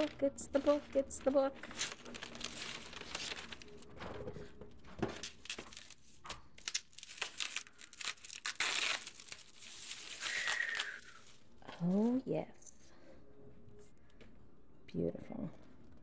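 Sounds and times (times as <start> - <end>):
bubble wrap tearing: 0.0 - 4.1, 5.0 - 12.2
tissue paper crinkling: 0.0 - 12.2.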